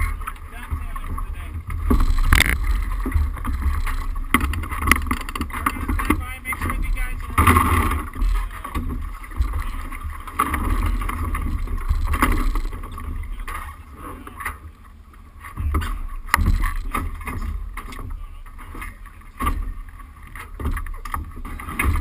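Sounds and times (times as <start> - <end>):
water splashing along hull: 0.0 - 22.0
sharp knocks: 0.7 - 9.7, 15.6 - 18.1.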